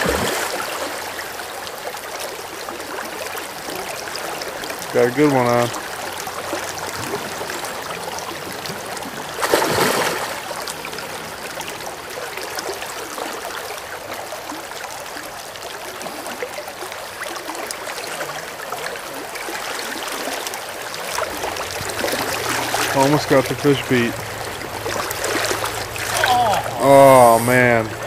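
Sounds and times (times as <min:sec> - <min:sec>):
river current over rocks: 0:00.0 - 0:28.0.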